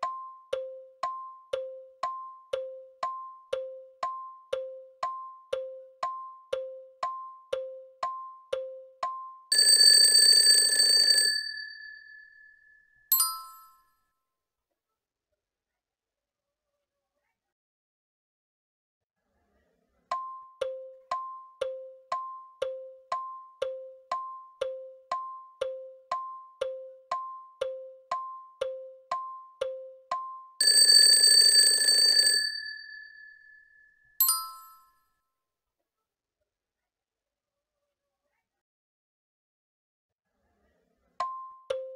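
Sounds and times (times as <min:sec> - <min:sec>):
clock ticks: 0:00.0 - 0:11.4, 0:20.1 - 0:32.2, 0:41.2 - 0:41.9
alarm clock bell ringing: 0:09.4 - 0:13.8, 0:30.5 - 0:34.9.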